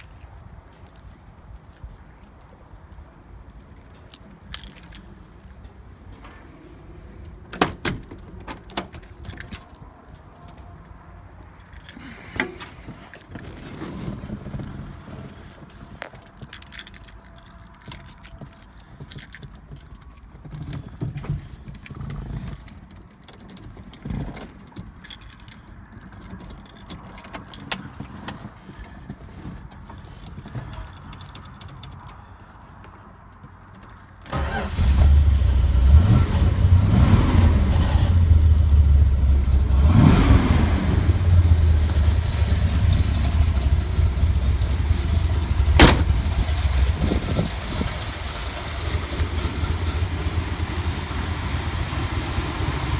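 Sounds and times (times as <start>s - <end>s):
car keys jangling: 0.0s - 5.7s, 8.6s - 10.5s, 11.4s - 12.3s, 16.1s - 28.4s
low handling rumbles: 35.7s - 52.9s.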